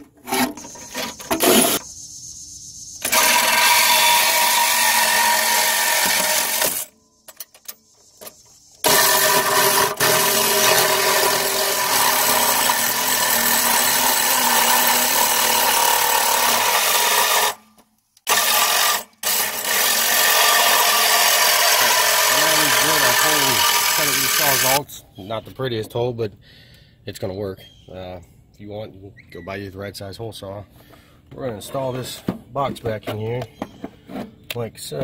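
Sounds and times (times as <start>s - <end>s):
hole saw cutting sheet metal: 0.2s - 1.8s, 3.0s - 6.9s, 8.8s - 17.6s, 18.3s - 24.8s.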